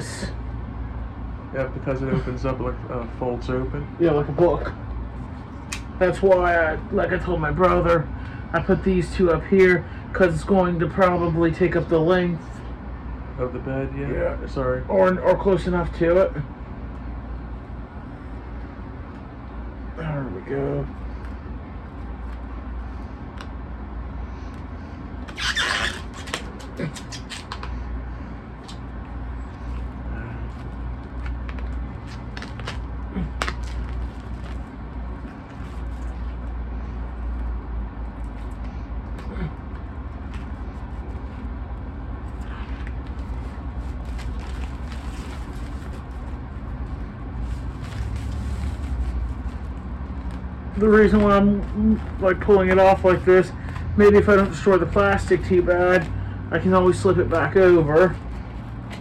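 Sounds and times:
steady low hum: 0:00.0 - 0:59.0
plastic shrink-wrap crinkling: 0:31.2 - 0:34.7, 0:43.0 - 0:50.5.

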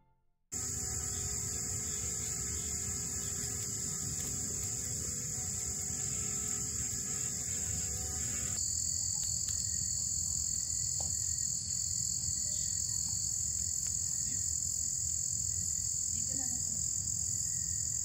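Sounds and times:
crickets chirping: 0:00.5 - 0:18.0.

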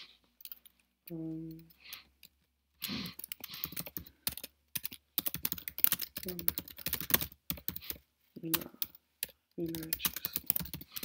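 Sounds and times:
typing on computer keyboard: 0:03.2 - 0:11.0.

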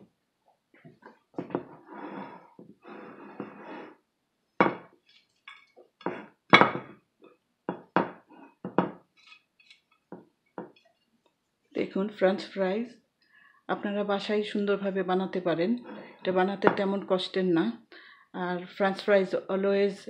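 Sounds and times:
plates knocking and clinking: 0:00.9 - 0:03.9, 0:04.6 - 0:04.9, 0:05.5 - 0:07.0, 0:07.7 - 0:10.8, 0:16.6 - 0:16.9
scraping on a table: 0:01.0 - 0:04.0, 0:06.0 - 0:06.9, 0:15.8 - 0:16.8.

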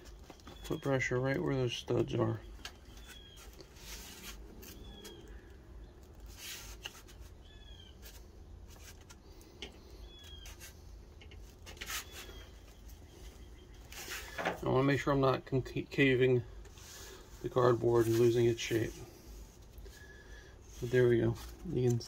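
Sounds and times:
cardboard rustling and rubbing: 0:02.9 - 0:05.2, 0:06.0 - 0:09.2, 0:11.4 - 0:12.8, 0:16.8 - 0:19.8.

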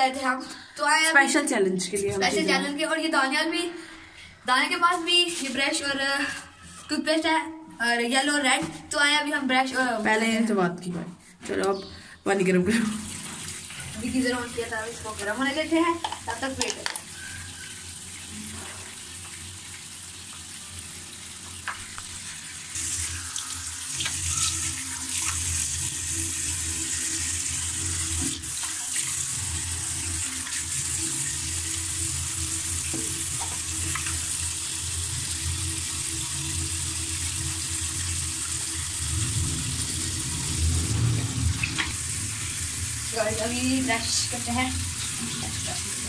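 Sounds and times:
tap water running into sink: 0:12.7 - 0:46.0.

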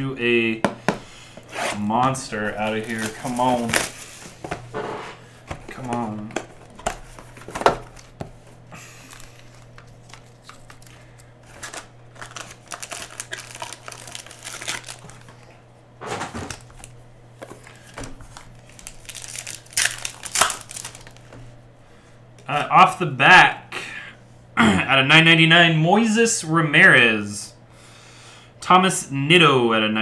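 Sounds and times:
steady low hum: 0:00.0 - 0:30.0
foil packs crinkling: 0:01.3 - 0:15.6, 0:16.2 - 0:21.4
foil pack tearing: 0:01.4 - 0:04.4, 0:05.7 - 0:15.5, 0:16.4 - 0:21.2.

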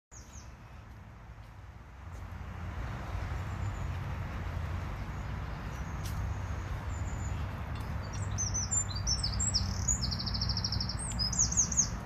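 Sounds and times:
faint high bird chirps: 0:08.0 - 0:12.0.

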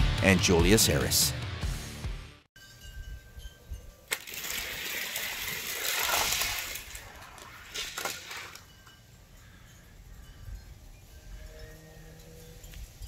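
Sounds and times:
toy car wheels rattling on track: 0:04.1 - 0:08.7.

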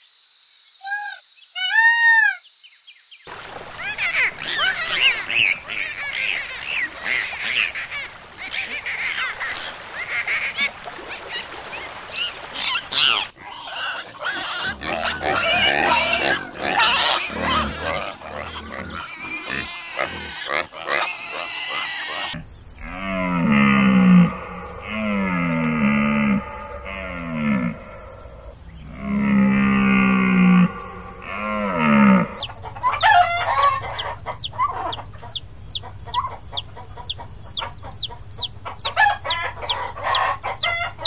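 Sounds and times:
pigs grunting and squealing: 0:12.6 - 0:33.8.

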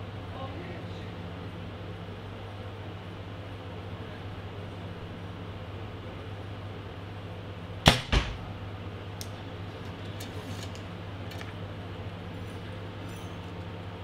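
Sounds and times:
arrow hitting target: 0:07.9 - 0:08.5.

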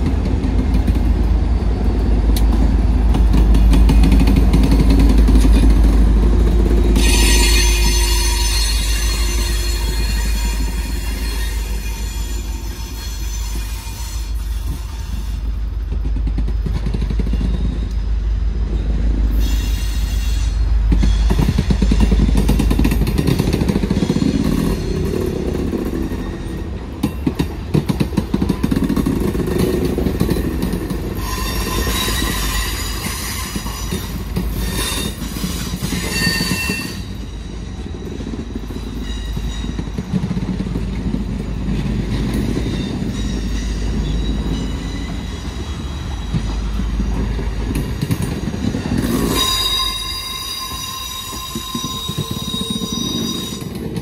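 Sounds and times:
train wheels rumbling on rail: 0:00.0 - 0:54.0
high-pitched wheel squeal: 0:06.8 - 0:15.5, 0:17.2 - 0:22.2, 0:31.1 - 0:39.9, 0:42.6 - 0:47.3, 0:48.2 - 0:53.8.

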